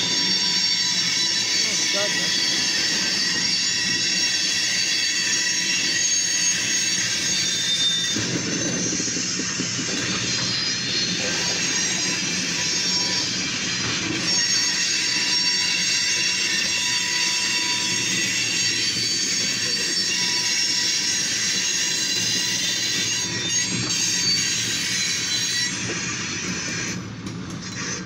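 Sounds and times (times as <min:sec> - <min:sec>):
train wheels squealing: 0:00.0 - 0:28.0.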